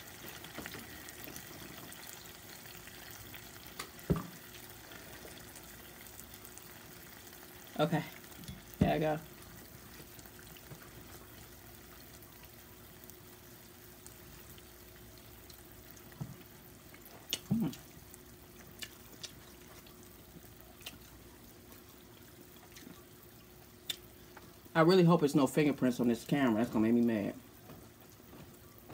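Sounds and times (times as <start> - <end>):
low hum and hiss: 0.0 - 28.9
person eating: 17.0 - 18.0, 18.6 - 20.0
mouth clicks: 17.3 - 17.8
person humming: 17.4 - 17.8.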